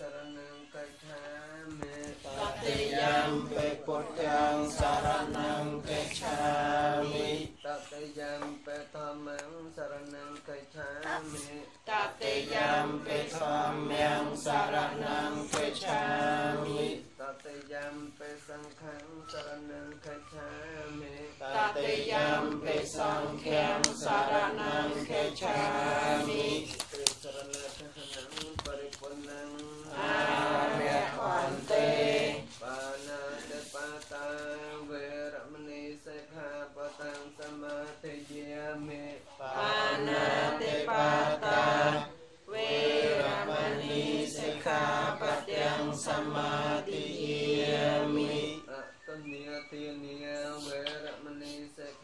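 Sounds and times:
voices chanting together: 0.0s - 52.0s.

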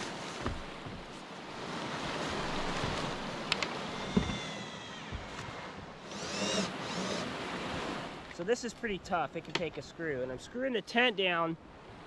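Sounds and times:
wind hiss: 1.4s - 8.3s
cordless drill whining: 3.8s - 7.4s
knocks on wooden deck: 4.1s - 4.5s.

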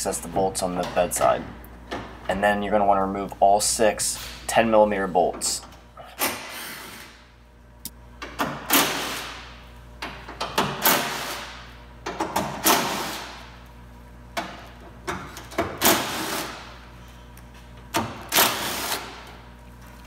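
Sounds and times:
impact driver bursts: 18.3s - 19.2s.

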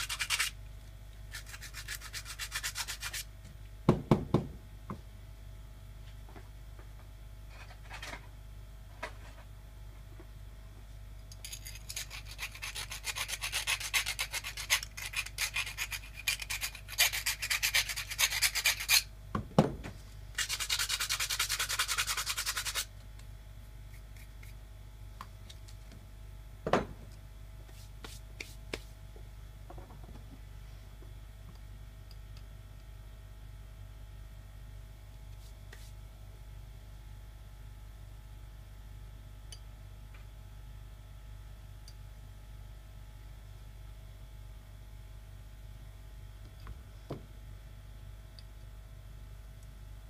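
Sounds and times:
hand file scraping copper pipe: 0.0s - 0.5s, 11.6s - 19.1s, 20.4s - 22.9s.

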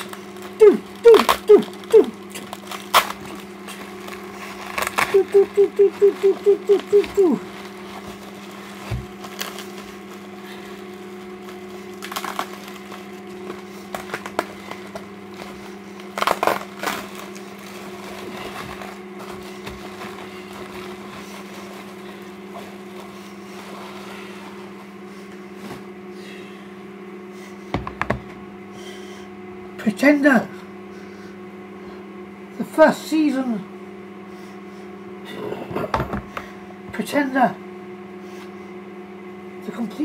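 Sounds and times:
plastic packaging crinkling: 0.0s - 24.8s
low electrical hum: 0.0s - 40.0s.

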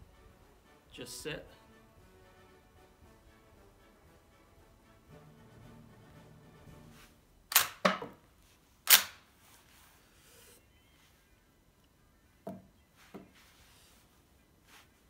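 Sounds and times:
rifle bolt metallic clacks: 7.5s - 8.0s, 8.9s - 9.2s.

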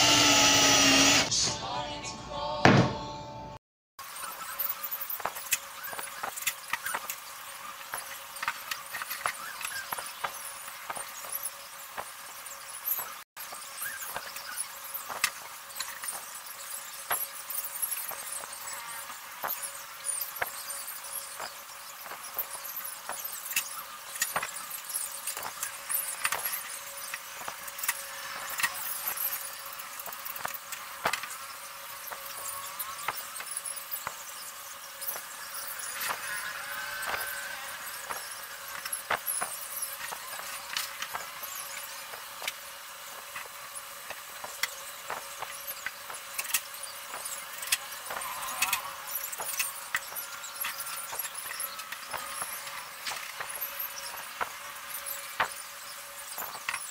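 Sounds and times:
drill and plywood clicks: 0.0s - 1.3s, 35.0s - 56.9s.

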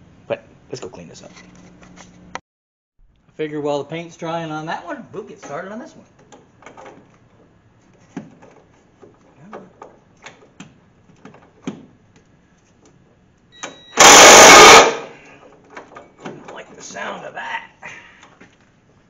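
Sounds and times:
impact wrench burst: 14.0s - 15.2s.

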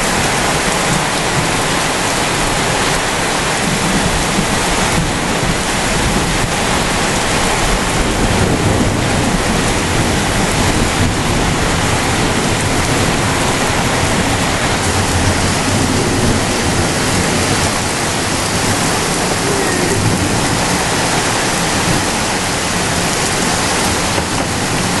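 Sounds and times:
heavy rain downpour: 0.0s - 25.0s.

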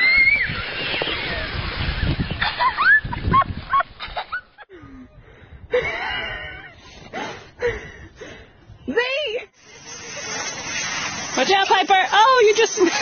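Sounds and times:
child squealing excitedly: 0.0s - 1.5s.

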